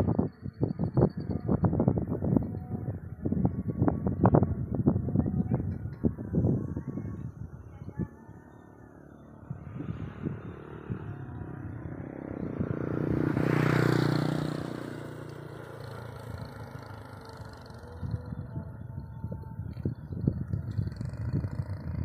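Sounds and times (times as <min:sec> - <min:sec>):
small motorcycle passing: 0:08.0 - 0:22.0.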